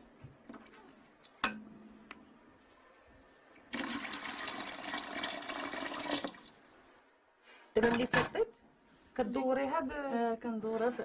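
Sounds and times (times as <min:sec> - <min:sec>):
water pouring into a pot: 0:03.7 - 0:06.7.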